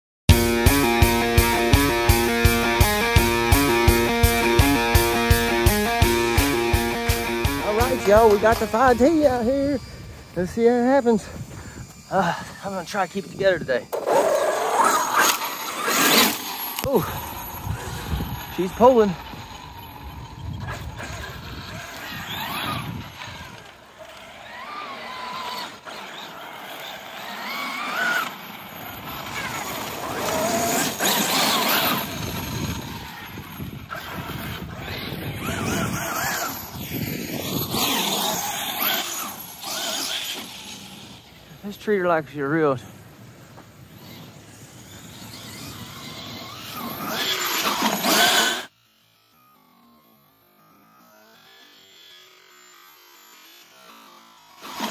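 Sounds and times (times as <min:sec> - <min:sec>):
electric motor whining: 0:00.3 - 0:54.9
tyre noise on gravel: 0:13.8 - 0:40.9.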